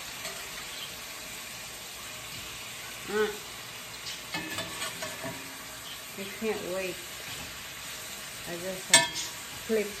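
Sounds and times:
beef sizzling in a pan: 0:00.0 - 0:10.0
person humming: 0:03.1 - 0:03.4
spoon clinking against pan: 0:08.9 - 0:09.4.

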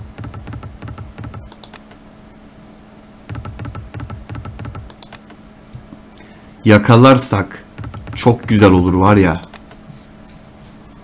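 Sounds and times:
slot machine reels clicking: 0:00.1 - 0:01.8, 0:03.3 - 0:05.2, 0:07.8 - 0:09.6.

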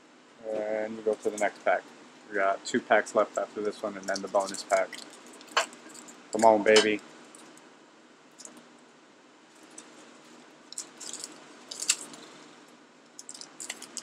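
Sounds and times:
foil wrapper crinkling and tearing: 0:04.0 - 0:06.5, 0:10.7 - 0:12.6, 0:13.2 - 0:14.0.

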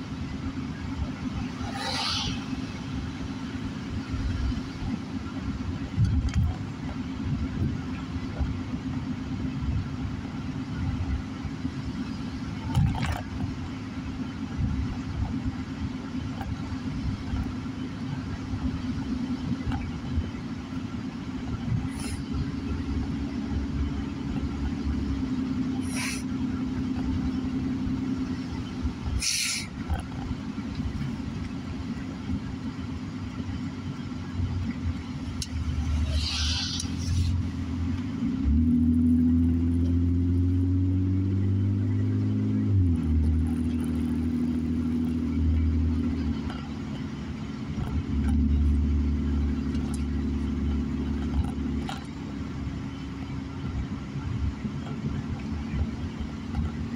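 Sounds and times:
car engine and tyre rumble: 0:00.0 - 0:56.9
brief hiss: 0:29.2 - 0:29.7.

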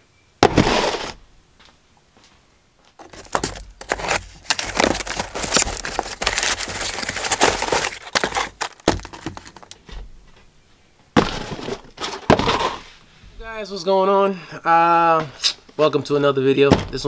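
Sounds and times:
cardboard box scraping and rustling: 0:00.4 - 0:01.2, 0:03.0 - 0:09.8, 0:11.2 - 0:13.0.

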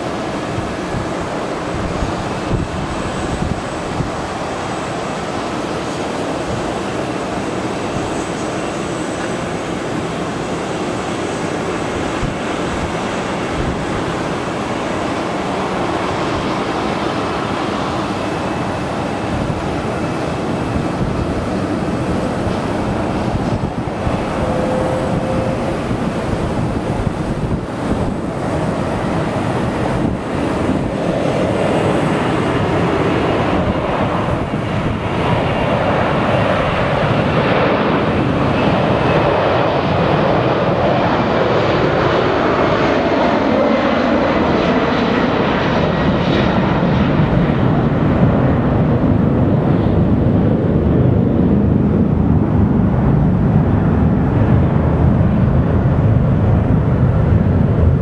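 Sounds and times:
high engine whine: 0:00.0 - 0:41.4
jet engines roaring: 0:00.0 - 0:58.0.

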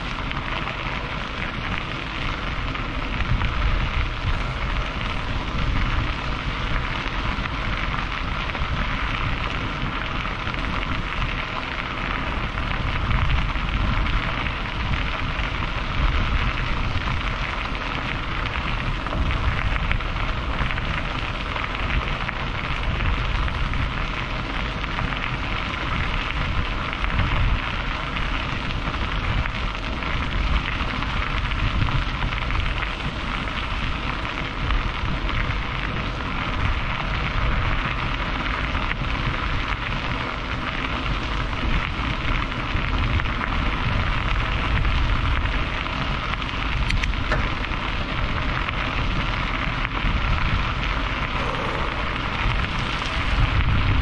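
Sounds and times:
road and wind noise in car: 0:00.0 - 0:54.0.

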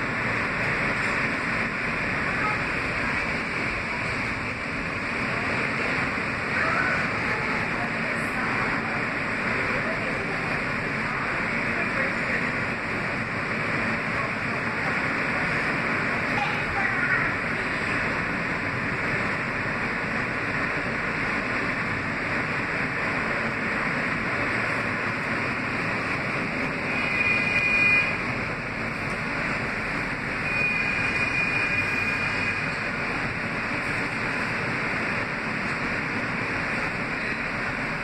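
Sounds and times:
subway car wheels rumbling on rail: 0:00.0 - 0:38.0
high-pitched wheel squeals: 0:26.8 - 0:28.3, 0:30.4 - 0:32.8.

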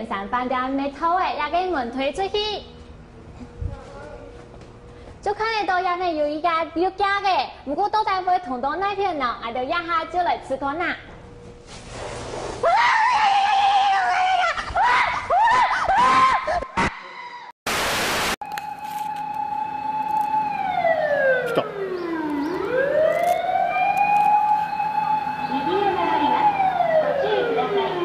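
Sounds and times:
siren-like wail: 0:18.6 - 0:28.0.

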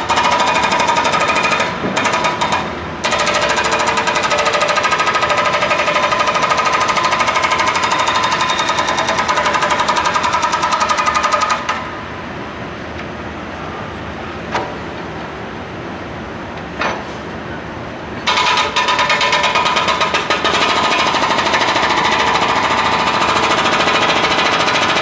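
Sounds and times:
hydraulic breaker hammering pavement: 0:00.0 - 0:11.8, 0:18.2 - 0:25.0.

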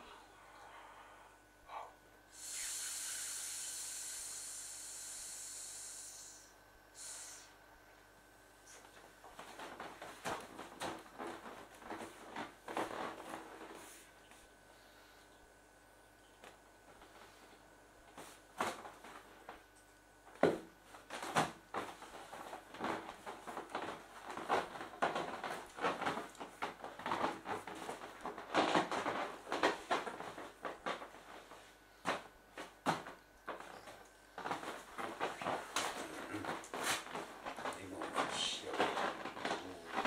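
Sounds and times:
inflatable plastic toy knocking and rubbing: 0:08.8 - 0:14.4, 0:18.1 - 0:19.6, 0:20.3 - 0:40.0.

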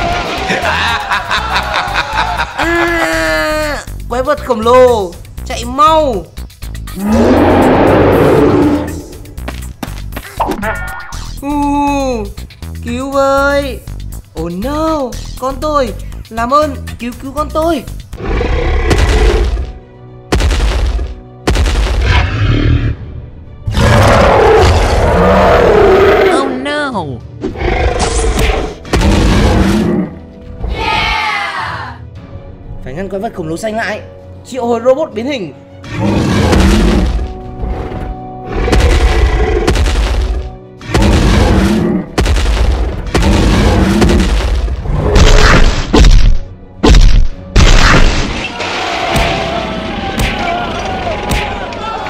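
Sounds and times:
background music: 0:00.0 - 0:52.0
monster roar: 0:07.0 - 0:09.2, 0:23.7 - 0:26.6
heavy booming stomps: 0:38.7 - 0:47.8
heavy boom and smash effects: 0:42.2 - 0:46.3.

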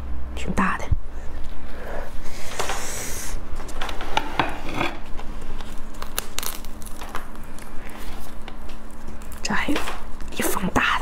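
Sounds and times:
plastic gloves crinkling: 0:05.0 - 0:11.0
soft tearing: 0:05.5 - 0:10.7.

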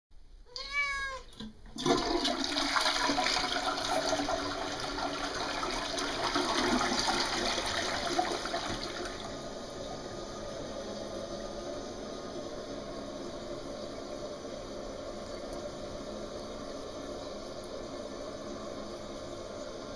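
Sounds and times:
cat meowing: 0:00.5 - 0:01.3
toilet flushing: 0:01.3 - 0:19.9.

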